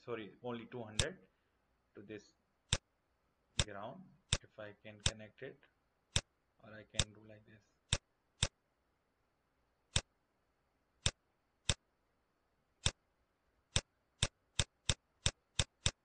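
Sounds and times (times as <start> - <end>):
computer mouse clicks: 4.3 - 5.2, 7.9 - 8.6, 9.9 - 10.1, 11.0 - 11.8, 12.8 - 13.0, 13.7 - 16.0.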